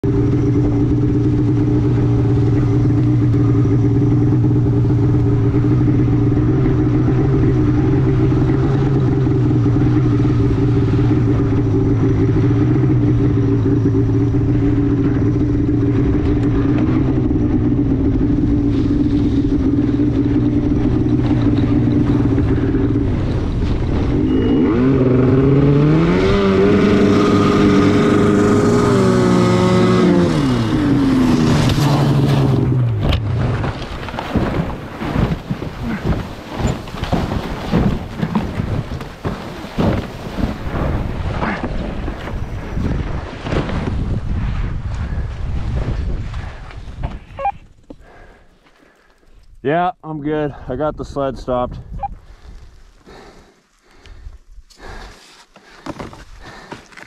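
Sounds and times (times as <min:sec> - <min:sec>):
snowmobile engine revving: 0:00.0 - 0:44.4.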